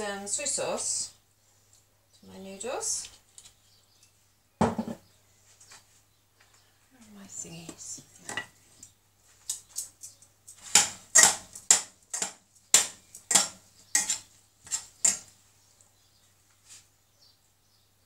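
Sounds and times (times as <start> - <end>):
tongs clinking and scraping saucepan: 9.4 - 15.3.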